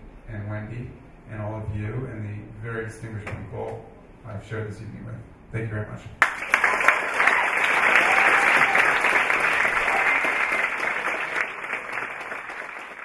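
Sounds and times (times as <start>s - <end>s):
crowd clapping: 6.2s - 13.0s.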